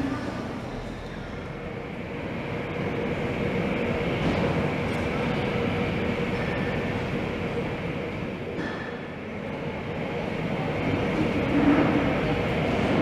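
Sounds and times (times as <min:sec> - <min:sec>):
jet engines rumbling and whining: 0:00.0 - 0:13.0.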